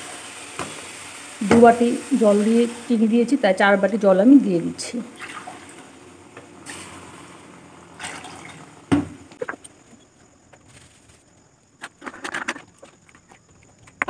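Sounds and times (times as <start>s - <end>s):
water pouring into pan: 5.1s - 8.9s.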